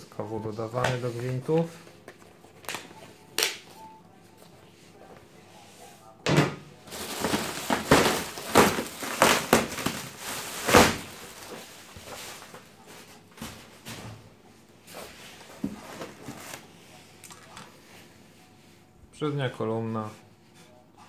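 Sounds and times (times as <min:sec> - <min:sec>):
plastic sheeting crinkling: 0:06.8 - 0:13.9
handling noises: 0:06.8 - 0:17.8.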